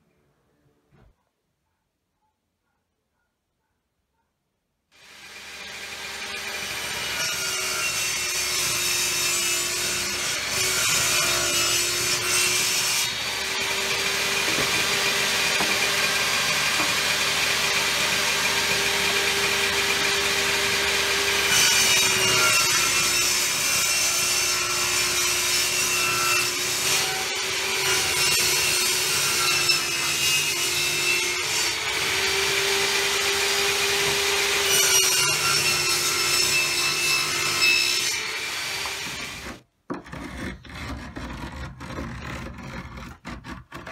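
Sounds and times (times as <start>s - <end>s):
table saw blade hum: 5.0s - 39.6s.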